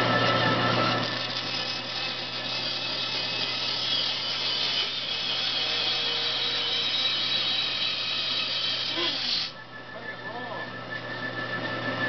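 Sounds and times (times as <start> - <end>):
bandsaw cutting wood: 0.0 - 9.6.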